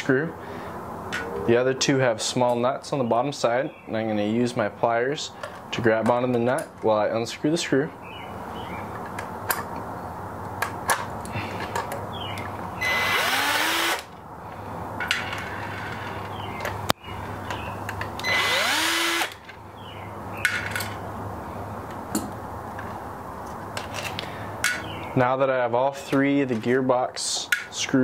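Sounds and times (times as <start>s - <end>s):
power screwdriver whirring: 12.8s - 14.1s, 18.2s - 19.4s.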